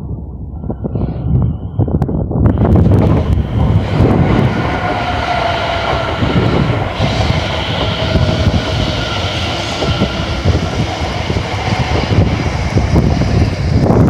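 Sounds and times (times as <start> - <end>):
train wheels rumbling on rails: 0.0 - 14.0
train whine: 0.0 - 14.0.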